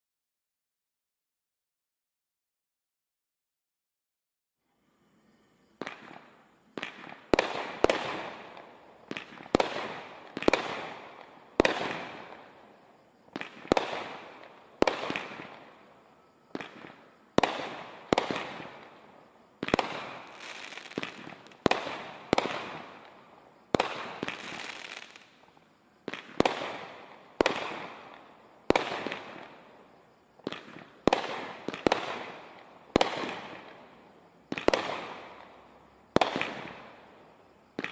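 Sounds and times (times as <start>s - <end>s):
firework cake firing bangs: 30.5s - 33.8s.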